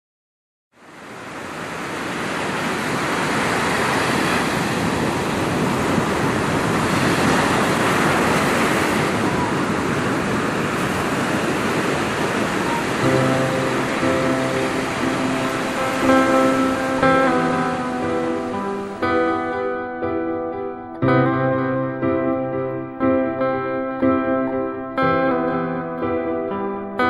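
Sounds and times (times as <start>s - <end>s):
surf breaking on beach: 0.8s - 20.2s.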